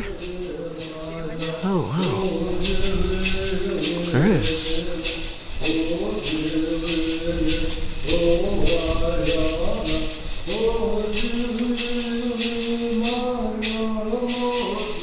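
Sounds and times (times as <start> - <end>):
person chanting: 0.8 - 5.0.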